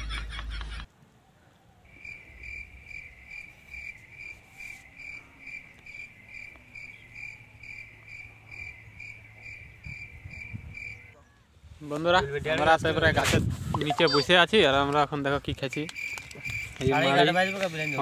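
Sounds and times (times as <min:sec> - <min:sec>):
insect chirping: 0:01.8 - 0:11.1, 0:15.7 - 0:18.0.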